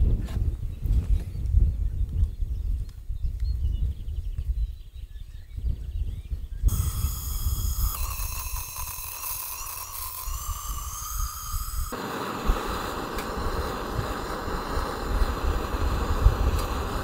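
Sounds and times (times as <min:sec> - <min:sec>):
wind buffeting microphone: 0:00.0 - 0:17.0
gas torch flame hissing: 0:06.7 - 0:17.0.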